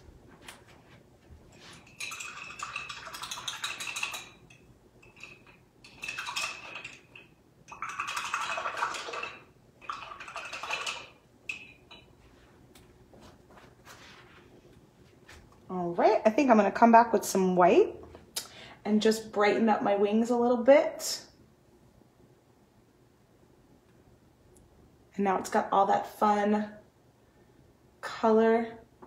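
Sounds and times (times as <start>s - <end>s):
paintbrush swishing in water cup: 13.2s - 15.4s.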